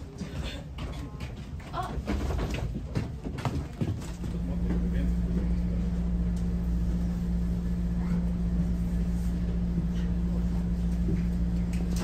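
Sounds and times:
train carriage mechanical hum: 0.0 - 12.0.

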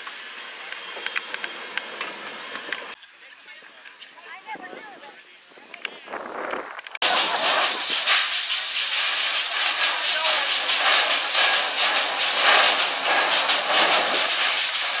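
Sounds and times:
steam locomotive venting steam: 7.0 - 15.0.

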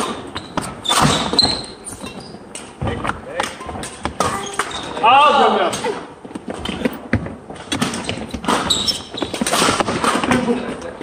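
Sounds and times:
racket hitting shuttlecock: 9.3 - 10.4.

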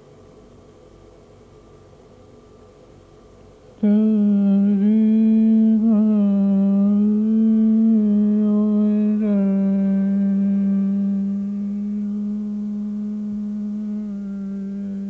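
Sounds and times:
person humming slow melody: 3.8 - 15.0.

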